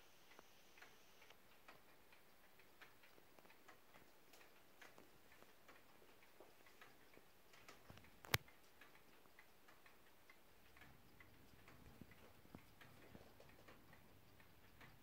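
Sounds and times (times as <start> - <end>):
wall clock ticking faintly: 0.0 - 15.0.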